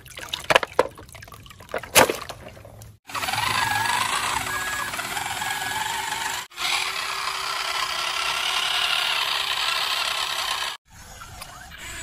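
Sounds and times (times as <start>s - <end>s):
toy motors whirring and rattling: 3.1s - 12.0s.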